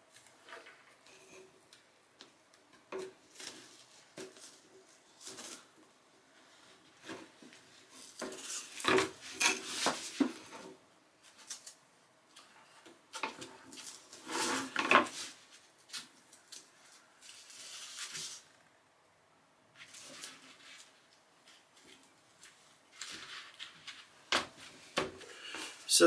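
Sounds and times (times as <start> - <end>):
foam and board rubbing and scraping: 14.0 - 15.4.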